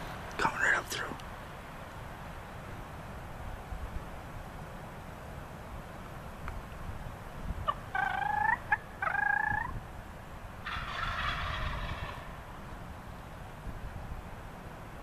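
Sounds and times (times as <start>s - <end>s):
short turkey calls: 7.6s - 9.7s, 10.6s - 12.4s
turkey gobbling: 7.6s - 9.7s, 10.6s - 12.4s.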